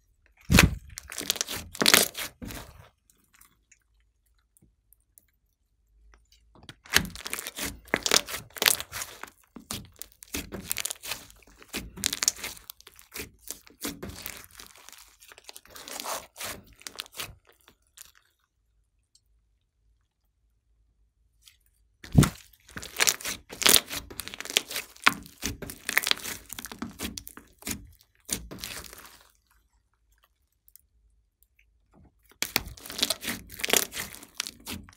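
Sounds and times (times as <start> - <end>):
slime crackling and popping: 0.4 - 2.8, 6.6 - 18.2, 22.0 - 29.5, 32.3 - 34.9.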